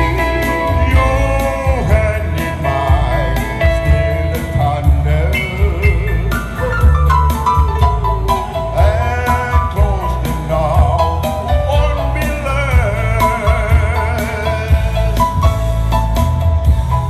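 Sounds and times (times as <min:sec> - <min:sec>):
person singing with vibrato: 0:00.0 - 0:15.9
backing music with beat: 0:00.0 - 0:17.0.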